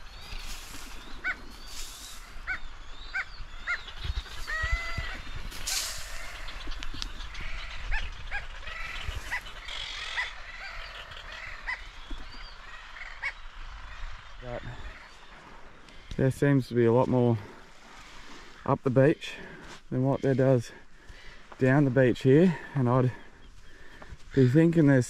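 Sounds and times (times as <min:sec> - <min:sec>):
rustling hiss: 0:00.0 - 0:02.4, 0:05.4 - 0:07.1
seabirds calling: 0:00.0 - 0:25.0.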